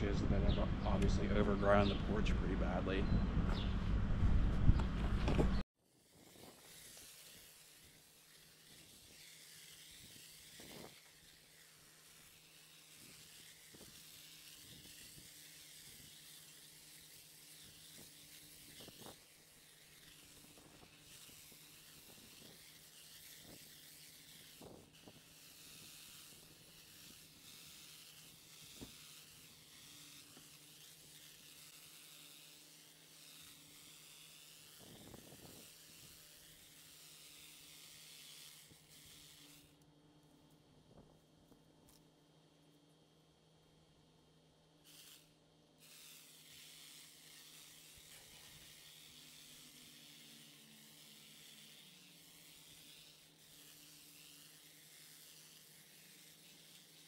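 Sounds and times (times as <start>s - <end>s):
faint hiss: 5.8s - 39.9s.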